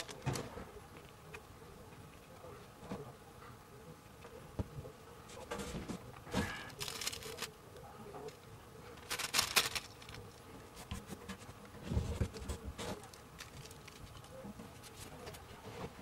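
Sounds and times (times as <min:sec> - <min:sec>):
rolling paper rustling: 0:00.0 - 0:00.7, 0:05.3 - 0:07.6, 0:08.2 - 0:16.0
dry herb crumbling by hand: 0:06.8 - 0:07.6, 0:09.0 - 0:10.4.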